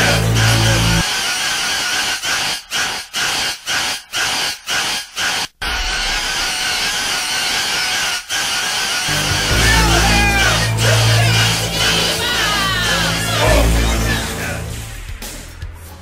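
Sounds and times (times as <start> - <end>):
harsh noisy whirring prop: 0.0 - 15.1.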